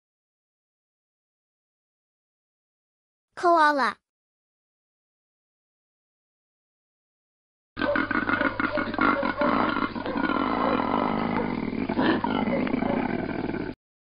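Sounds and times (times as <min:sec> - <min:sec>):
koala bellowing: 0:07.8 - 0:13.3.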